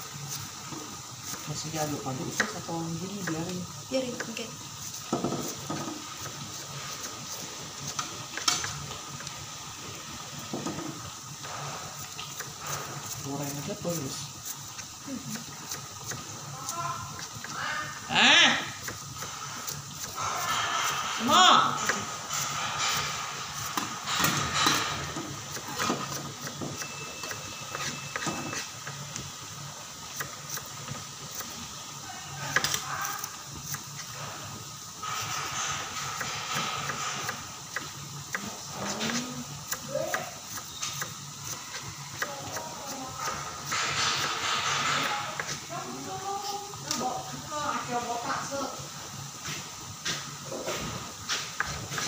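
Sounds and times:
shallots sizzling in hot oil: 0.0 - 52.0
metal spatula scraping wok: 19.1 - 28.8, 34.0 - 37.6, 43.0 - 45.8.

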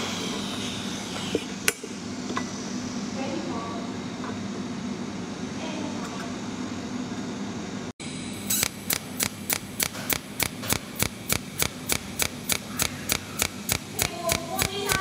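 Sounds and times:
welding machine sharp snaps: 8.4 - 15.0.

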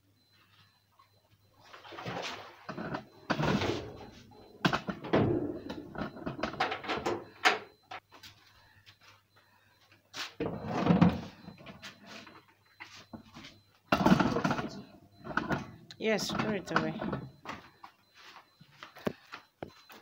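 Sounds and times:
objects knocking and clattering: 2.7 - 8.0, 10.4 - 11.8, 13.1 - 17.7.

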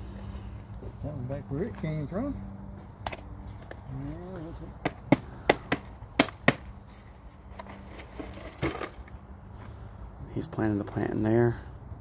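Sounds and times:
hand tools knocking and chopping: 4.8 - 6.7.

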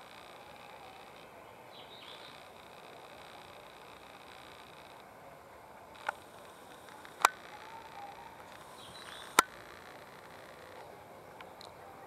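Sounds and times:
faint outdoor background: 0.0 - 12.0
sharp clicks: 2.1 - 5.1, 5.8 - 11.8.

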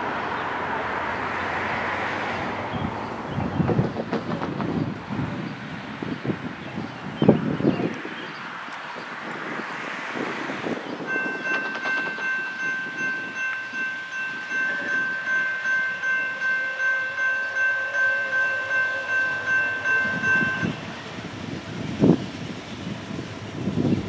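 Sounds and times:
low rumble of train: 0.0 - 24.0
locomotive air horn blast: 13.7 - 21.1.

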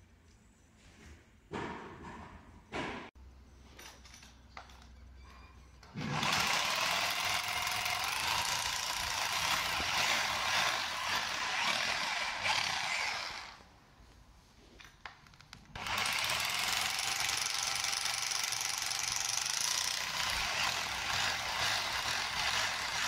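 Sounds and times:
power drill boring into stone: 6.0 - 13.6, 15.8 - 23.0.

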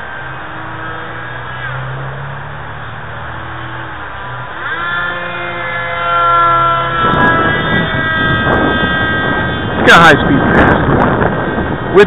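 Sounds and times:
electric model plane motor whining: 0.2 - 11.9
wind on microphone: 4.5 - 12.0.

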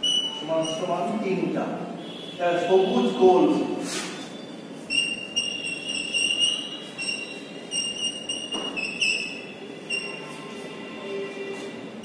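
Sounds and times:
chalk squeaking on blackboard: 0.0 - 0.9, 3.8 - 10.6.

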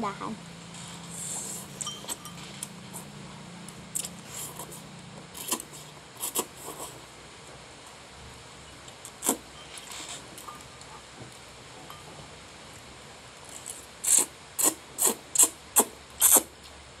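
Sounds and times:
noodles being slurped: 4.0 - 7.1, 9.1 - 10.2, 13.5 - 16.5.

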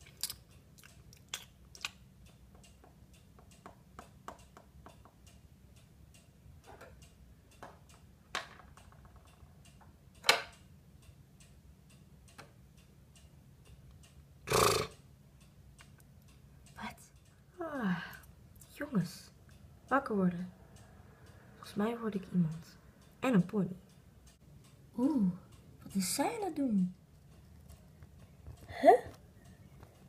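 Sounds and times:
faint small ticks and clicks: 0.0 - 18.8, 25.4 - 30.0.

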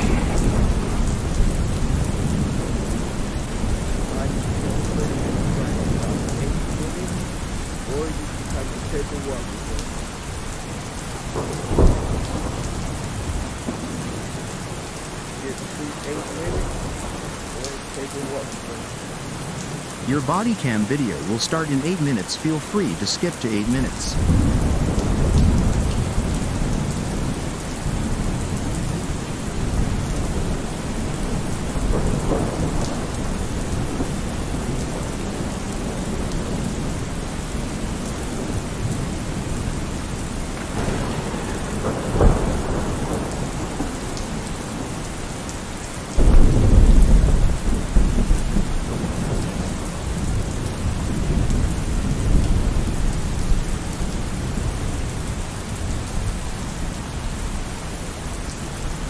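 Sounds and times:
sharp thunder crack: 0.0 - 2.6
thunder rumbling: 0.0 - 6.8, 11.3 - 14.2, 23.9 - 37.0, 40.6 - 44.9, 46.2 - 53.0
steady rain: 0.0 - 59.0.

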